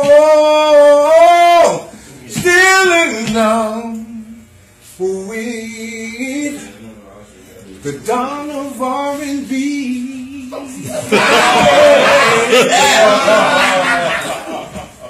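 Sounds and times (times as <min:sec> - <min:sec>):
man singing unaccompanied: 0:00.0 - 0:06.9, 0:07.8 - 0:12.6.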